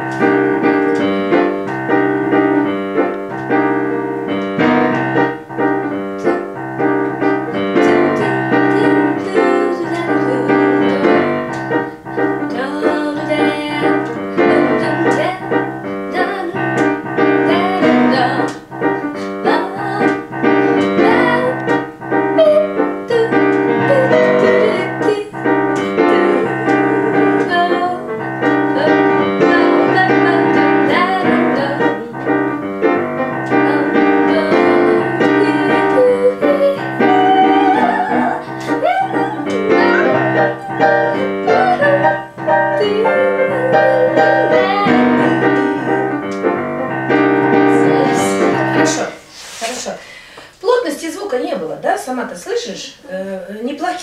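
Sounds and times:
upright piano playing jazz chords: 0:00.0 - 0:49.3
woman singing wordless vocals: 0:06.2 - 0:32.6, 0:33.4 - 0:46.0, 0:47.1 - 0:50.0.

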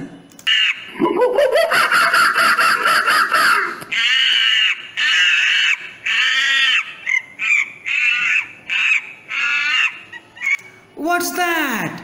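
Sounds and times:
monkey screeching cries: 0:00.5 - 0:01.0, 0:02.4 - 0:10.7.

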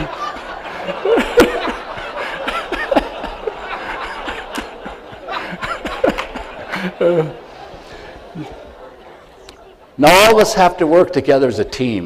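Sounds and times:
audience laughing: 0:00.0 - 0:10.0.

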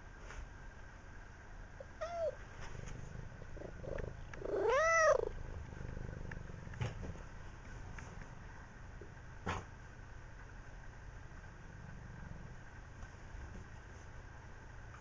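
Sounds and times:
cat meowing: 0:01.9 - 0:02.4, 0:03.8 - 0:05.4.

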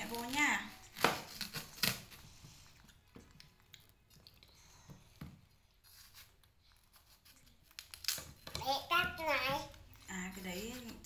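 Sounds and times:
knife crunching through rind: 0:00.0 - 0:02.2.

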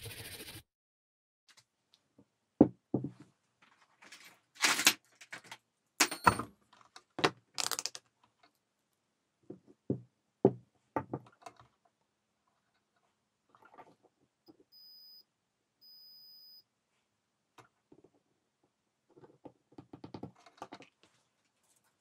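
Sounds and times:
handling knocks and clicks on table: 0:07.2 - 0:08.1.

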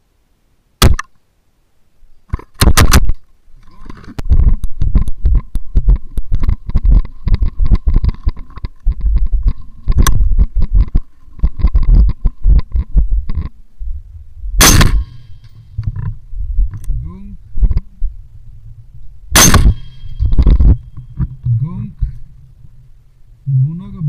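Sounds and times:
thumps and clicks on microphone: 0:02.3 - 0:13.6, 0:14.7 - 0:18.0, 0:19.4 - 0:22.3
rifle shot: 0:14.6 - 0:15.4, 0:19.3 - 0:20.8.

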